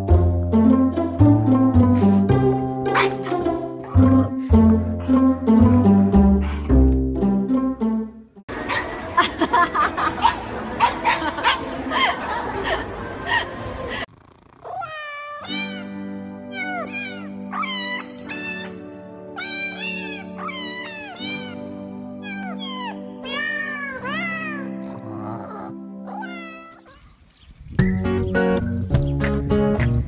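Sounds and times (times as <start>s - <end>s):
background music of held notes: 0.0s - 13.7s, 15.4s - 26.4s
dog whining: 14.6s - 27.1s.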